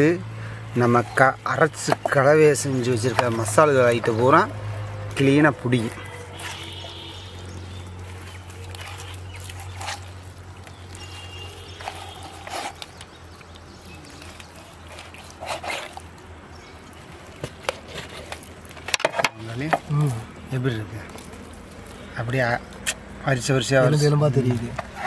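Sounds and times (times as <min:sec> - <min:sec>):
knife scoring raw chicken: 0:10.9 - 0:13.5.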